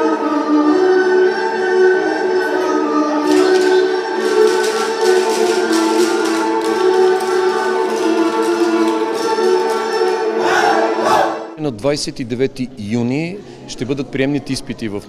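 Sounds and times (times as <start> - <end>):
instrumental folk dance music: 0.0 - 11.4.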